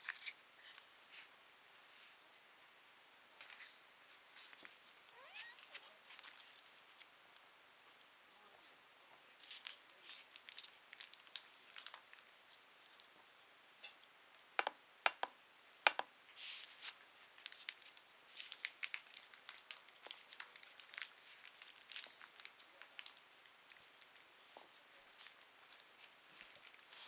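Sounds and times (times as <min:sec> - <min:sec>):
cat chewing and licking: 0:17.4 - 0:27.0.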